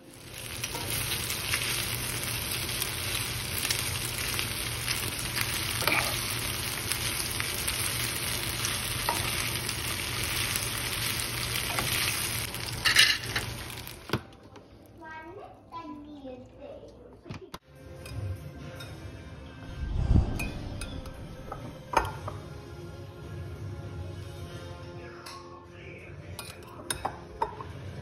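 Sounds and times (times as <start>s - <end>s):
chicken sizzling in frying pan: 0.0s - 14.1s.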